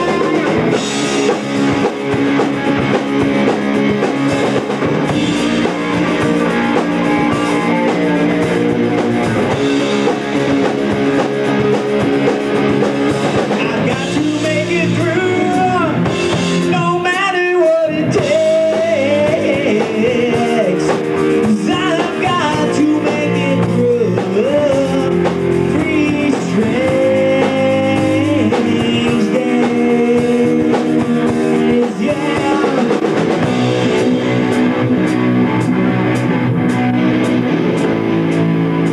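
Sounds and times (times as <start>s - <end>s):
drums: 0.0s - 38.9s
electric guitars: 0.0s - 38.9s
man singing into microphone: 13.6s - 33.4s.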